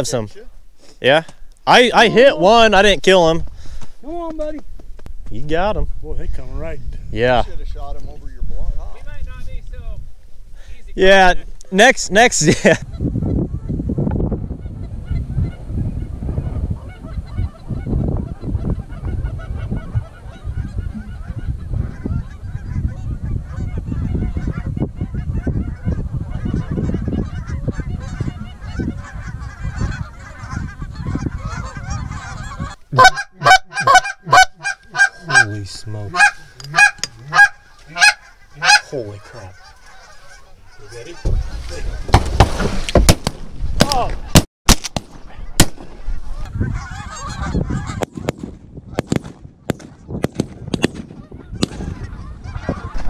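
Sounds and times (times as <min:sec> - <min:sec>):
geese honking: 0:14.5 - 0:42.1, 0:45.3 - 0:48.3, 0:51.2 - 0:53.0.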